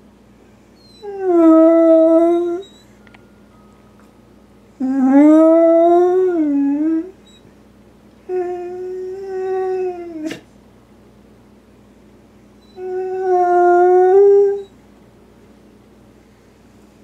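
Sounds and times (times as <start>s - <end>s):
dog howling: 0.8s - 2.8s, 4.8s - 7.4s, 8.3s - 10.4s, 12.6s - 14.7s.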